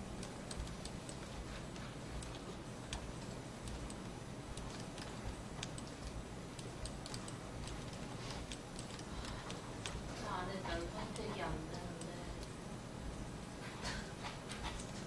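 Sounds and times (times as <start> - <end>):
mouse and keyboard clicks: 0.2 - 10.2.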